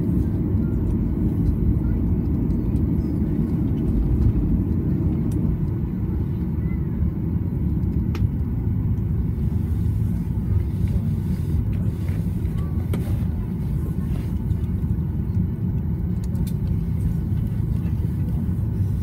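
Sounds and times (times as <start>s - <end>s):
airliner cabin rumble: 0.0s - 19.0s.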